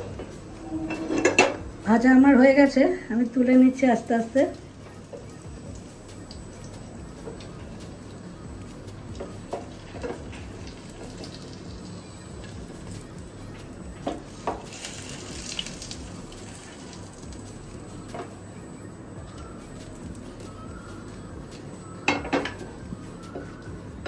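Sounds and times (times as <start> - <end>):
oil sizzling in a frying pan: 3.2 - 18.4.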